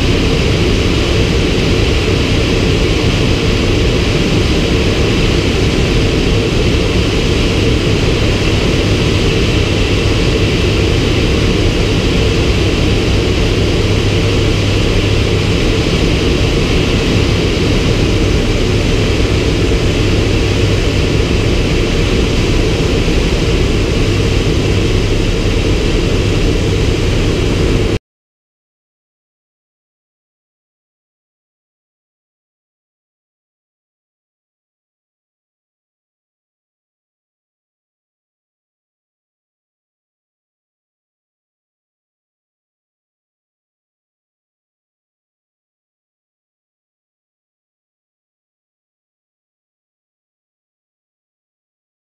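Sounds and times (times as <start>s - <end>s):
turboprop engine droning: 0.0s - 28.0s.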